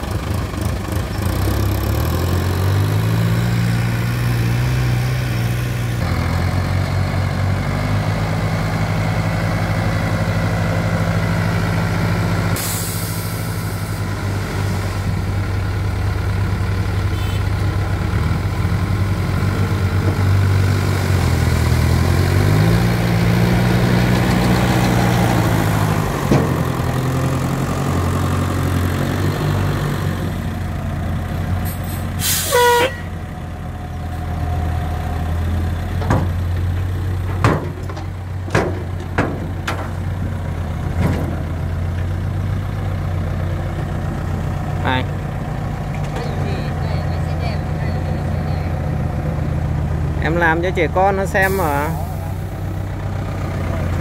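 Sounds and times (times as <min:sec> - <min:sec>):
diesel truck engine running: 0:00.0 - 0:54.0
loud hissing squeal: 0:32.2 - 0:33.1.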